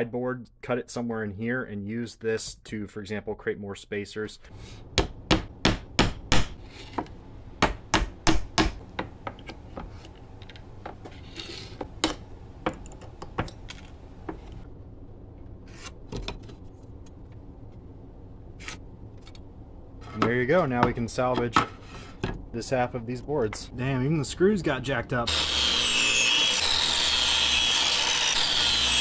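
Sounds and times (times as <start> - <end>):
hammer knocking on wood: 7.6 - 9.4.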